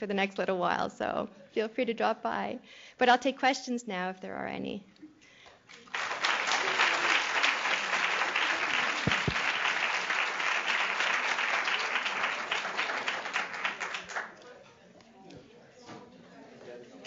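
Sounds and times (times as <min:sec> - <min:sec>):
audience applauding: 0:05.7 - 0:14.4.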